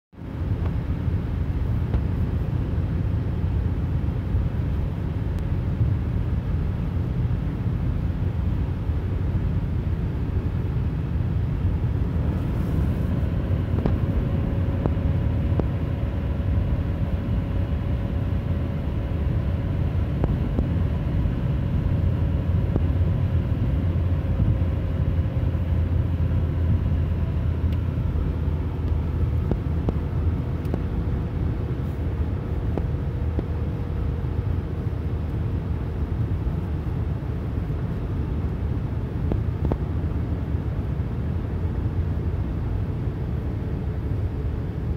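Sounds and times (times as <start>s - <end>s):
faint hum: 0.2s - 44.9s
tyre and road noise: 10.4s - 40.6s.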